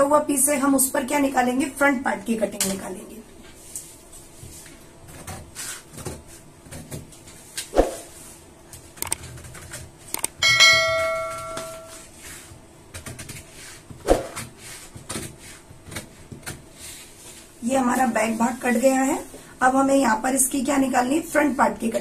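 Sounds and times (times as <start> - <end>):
bell chime ding: 10.4 - 12.1.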